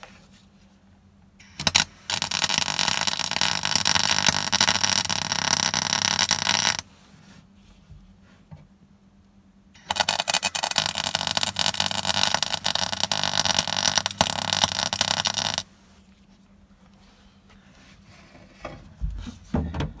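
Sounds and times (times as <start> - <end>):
welding arc crackling: 1.5 - 6.8, 9.8 - 15.7.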